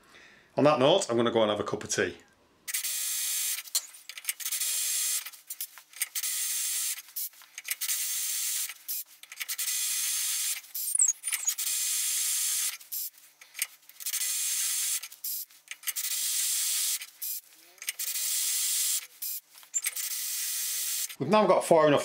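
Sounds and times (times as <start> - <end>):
drill holesaw grinding steel: 19.7 - 21.2.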